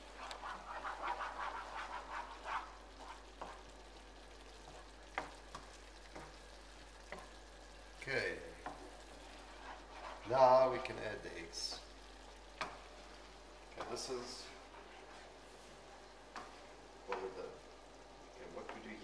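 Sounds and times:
wooden spoon scraping a pan: 0:00.0 - 0:03.7, 0:08.6 - 0:11.1, 0:13.7 - 0:16.8
sauce sizzling in a frying pan: 0:00.0 - 0:19.0.

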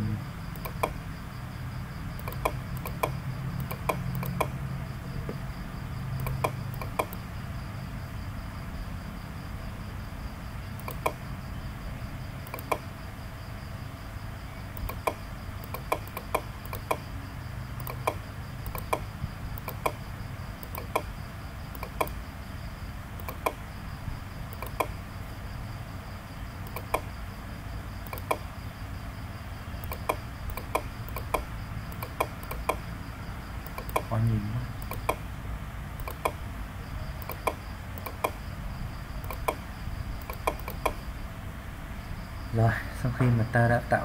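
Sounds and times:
low background hum: 0:00.0 - 0:44.0
computer mouse clicking: 0:00.5 - 0:01.0, 0:02.2 - 0:04.6, 0:06.2 - 0:07.2, 0:10.8 - 0:11.2, 0:12.4 - 0:12.9, 0:14.8 - 0:17.0, 0:17.8 - 0:20.0, 0:20.6 - 0:21.1, 0:21.7 - 0:22.2, 0:23.2 - 0:23.6, 0:24.5 - 0:25.0, 0:26.6 - 0:27.1, 0:28.0 - 0:28.5, 0:29.8 - 0:32.9, 0:33.6 - 0:34.2, 0:34.8 - 0:35.2, 0:36.0 - 0:36.4, 0:37.2 - 0:38.4, 0:39.2 - 0:41.1.

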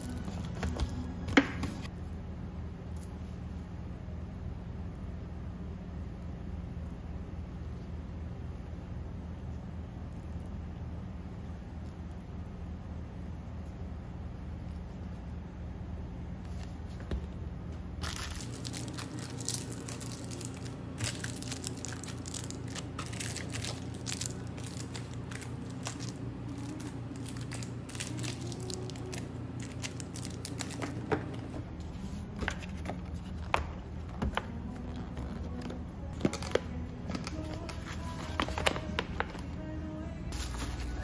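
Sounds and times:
steady low hum: 0:00.0 - 0:41.0
plastic lids crinkling and clicking: 0:36.2 - 0:39.4.

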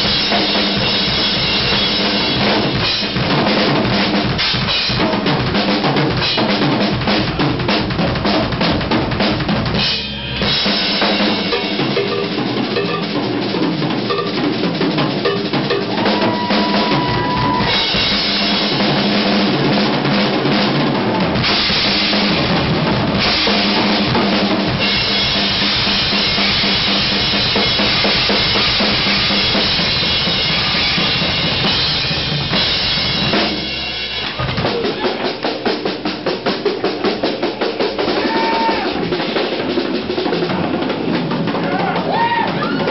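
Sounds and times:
rock drum solo: 0:00.0 - 0:42.9
cymbals washing: 0:09.8 - 0:18.9.

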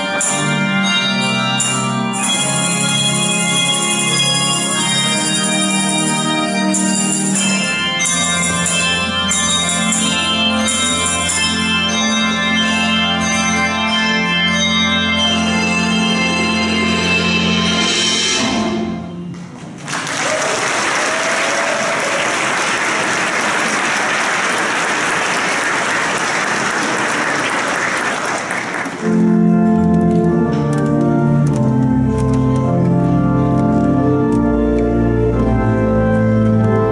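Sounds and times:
handbell choir chord: 0:00.0 - 0:18.2
church organ chords: 0:00.0 - 0:19.6, 0:28.7 - 0:36.9
congregation applauding: 0:19.7 - 0:29.2.

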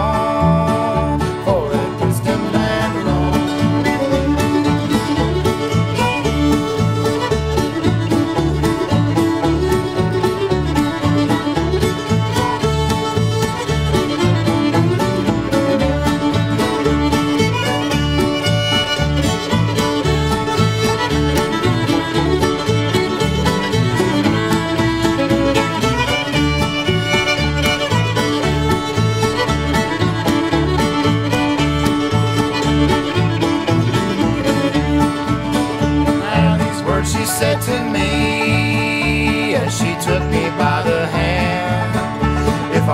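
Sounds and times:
fiddle melody: 0:00.0 - 0:42.9
guitar chords: 0:00.0 - 0:42.9
mandolin chords: 0:00.0 - 0:42.9
plucked upright bass: 0:00.0 - 0:42.9.

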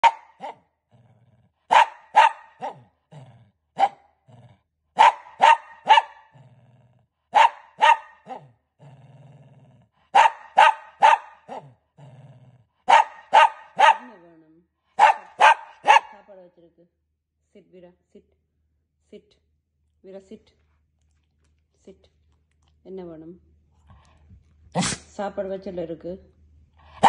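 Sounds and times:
dog barking: 0:00.0 - 0:00.6, 0:01.7 - 0:02.9, 0:03.8 - 0:04.1, 0:05.0 - 0:06.4, 0:07.3 - 0:08.5, 0:10.1 - 0:11.8, 0:12.8 - 0:14.2, 0:15.0 - 0:16.3
dog growling: 0:00.4 - 0:01.7, 0:02.6 - 0:04.7, 0:06.2 - 0:07.2, 0:08.2 - 0:10.1, 0:11.4 - 0:12.8.

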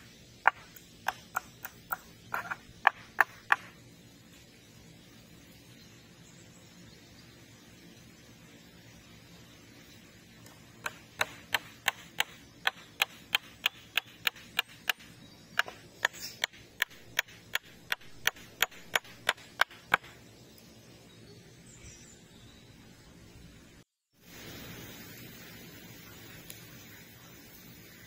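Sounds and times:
hand tool striking wood: 0:00.4 - 0:03.7, 0:10.8 - 0:20.2.

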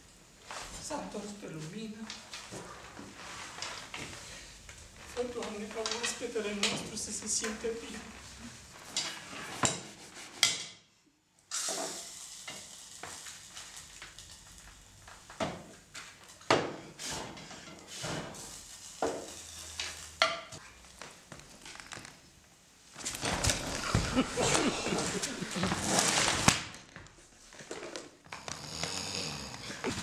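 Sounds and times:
soft hiss: 0:11.0 - 0:23.2.

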